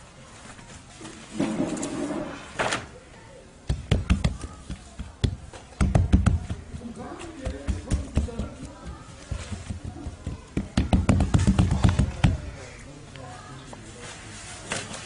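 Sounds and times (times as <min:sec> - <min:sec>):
hands slapping bread dough: 0:03.6 - 0:12.4.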